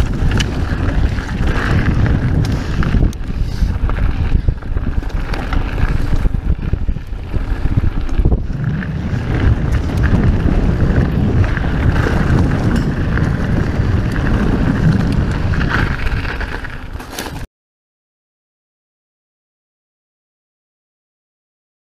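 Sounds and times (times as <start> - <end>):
wind buffeting microphone: 0.0 - 17.0
bike clicks and rattles: 0.0 - 17.5
bike tyres rumbling over gravel: 0.0 - 17.5.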